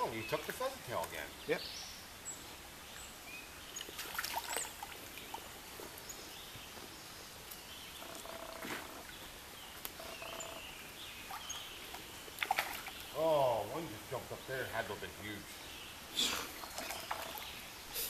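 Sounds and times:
small birds chirping: 0:00.0 - 0:18.0
woodland stream: 0:00.0 - 0:18.0.

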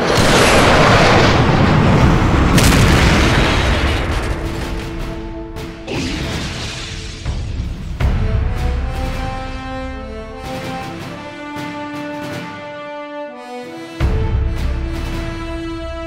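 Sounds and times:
deep explosion boom: 0:00.0 - 0:08.4
score music with held notes: 0:07.3 - 0:16.0.

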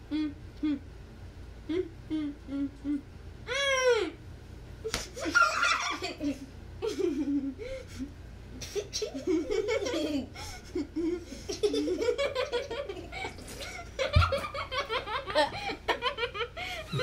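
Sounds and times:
people laughing: 0:09.2 - 0:17.0.

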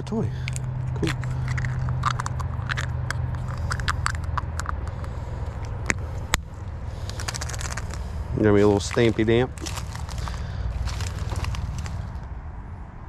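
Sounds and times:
steady low hum: 0:00.0 - 0:13.0
dry leaves crackling underfoot: 0:04.9 - 0:12.2.

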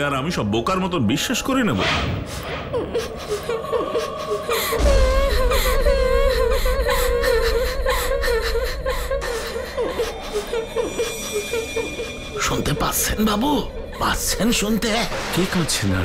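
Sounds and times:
ghostly sobbing wail: 0:02.3 - 0:15.0.

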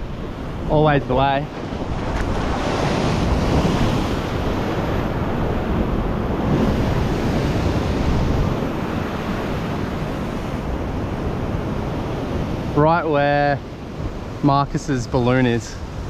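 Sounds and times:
surf breaking on rocks: 0:00.0 - 0:10.5
wind buffeting microphone: 0:00.0 - 0:14.5.

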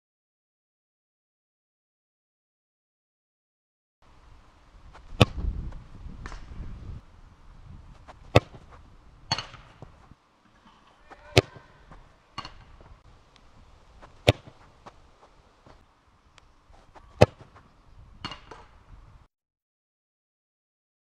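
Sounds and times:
football kicked hard thuds: 0:04.9 - 0:07.0, 0:07.7 - 0:10.1, 0:14.0 - 0:15.8, 0:16.8 - 0:17.6.

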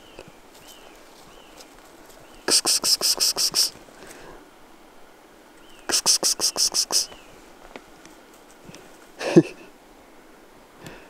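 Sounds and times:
rapid chattering call: 0:02.4 - 0:03.8, 0:05.7 - 0:07.2.

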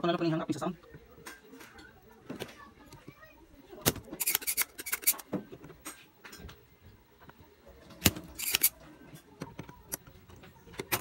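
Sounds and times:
tools clicking and rattling: 0:08.1 - 0:08.8.

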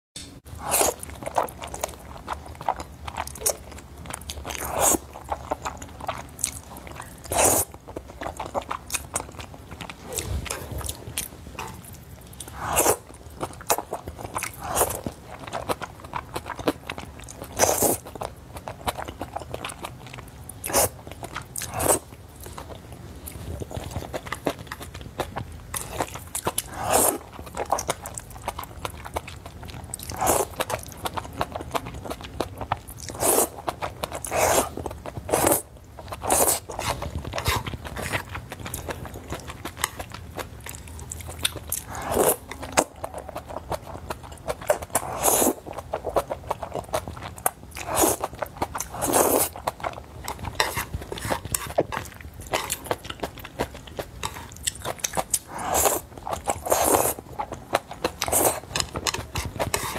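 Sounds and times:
chewing: 0:00.6 - 0:59.9
slurping noodles: 0:44.7 - 0:45.6, 0:47.8 - 0:49.6, 0:55.5 - 0:57.2.

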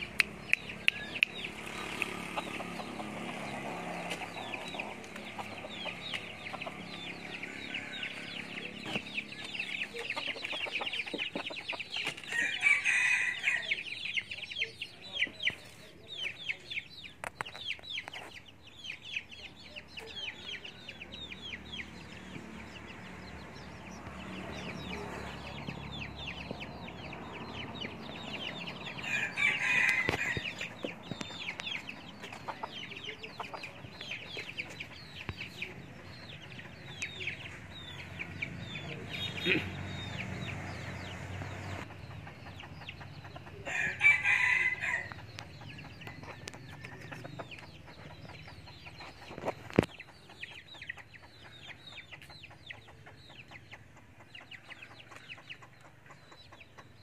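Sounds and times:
chicken clucking: 0:00.0 - 0:13.0, 0:13.6 - 0:57.0
rooster crowing: 0:12.3 - 0:13.8, 0:29.0 - 0:30.6, 0:43.6 - 0:45.2
fast ticking chatter: 0:41.8 - 0:43.7, 0:45.1 - 0:57.0.

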